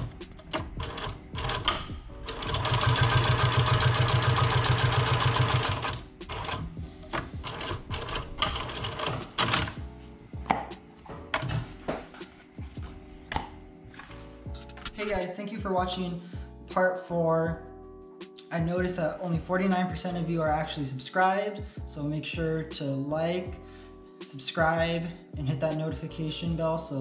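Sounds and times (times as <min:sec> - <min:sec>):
sewing machine stitching: 0:00.0 - 0:09.8.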